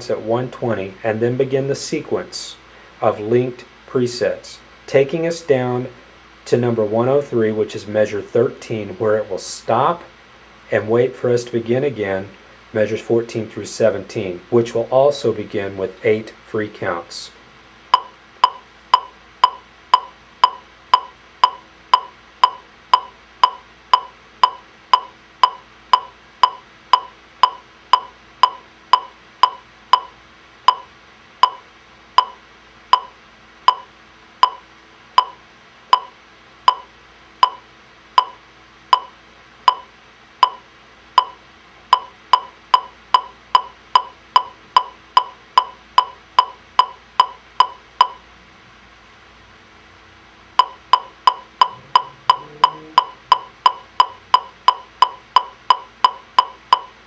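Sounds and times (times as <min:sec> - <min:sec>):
electronic metronome clicking: 0:17.9 - 0:48.2, 0:50.6 - 0:57.0.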